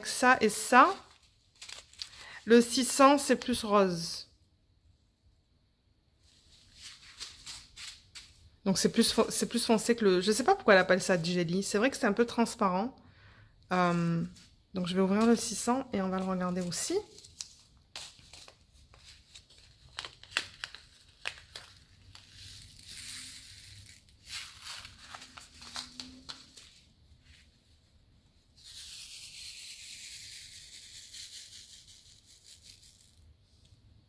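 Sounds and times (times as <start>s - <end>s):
plastic bag crinkling: 0.5s - 3.0s, 23.8s - 26.9s
tiny beads pouring out: 22.3s - 24.4s, 28.6s - 33.2s.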